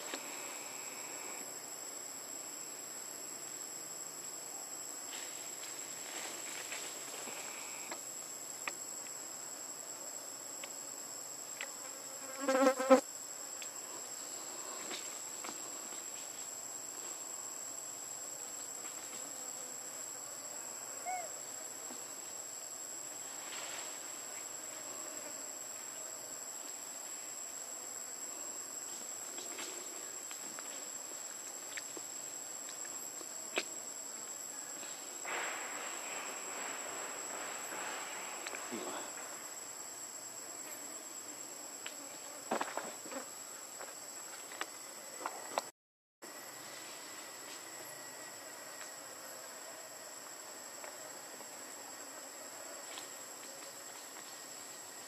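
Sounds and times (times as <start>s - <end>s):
faint hiss: 0.0s - 43.7s
high-pitched insect chorus: 0.0s - 55.0s.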